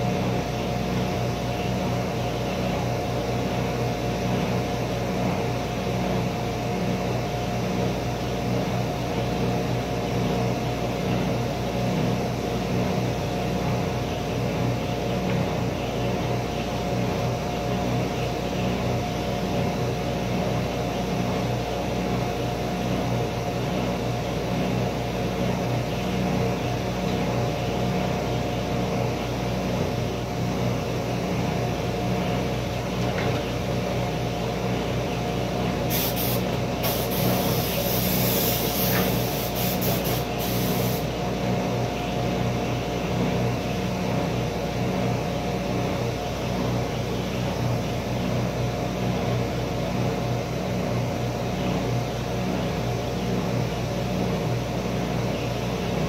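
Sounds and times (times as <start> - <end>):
high hiss: 35.9 - 41.1.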